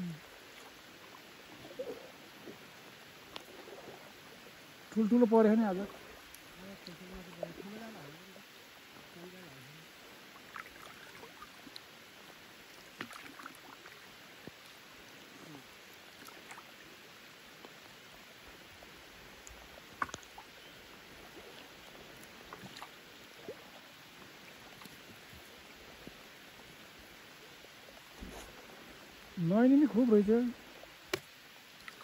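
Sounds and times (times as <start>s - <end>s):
rain on lake surface: 0.0s - 32.0s
small splashes and knocks: 12.9s - 14.8s, 19.4s - 20.5s, 21.4s - 23.7s, 31.0s - 32.0s.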